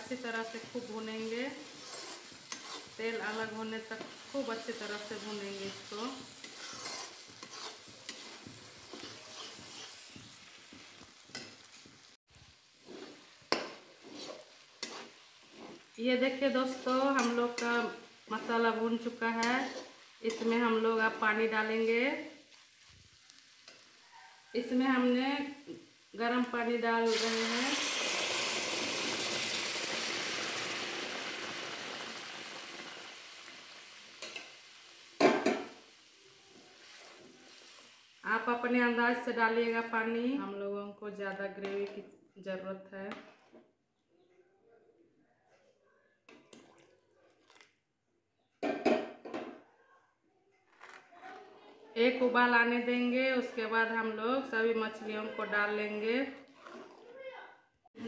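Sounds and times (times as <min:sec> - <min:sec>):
oil sizzling: 0:00.0 - 0:40.3
spatula scraping metal pan: 0:01.6 - 0:03.2, 0:04.8 - 0:10.4, 0:12.8 - 0:18.0, 0:19.3 - 0:20.6, 0:43.1 - 0:43.6, 0:56.4 - 0:57.0.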